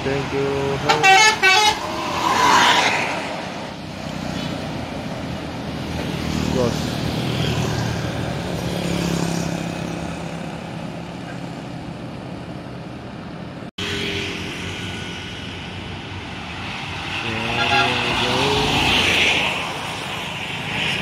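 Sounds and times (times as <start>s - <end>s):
traffic engine and tyre hum: 0.0s - 21.0s
motorcycles passing: 0.1s - 12.2s, 13.8s - 21.0s.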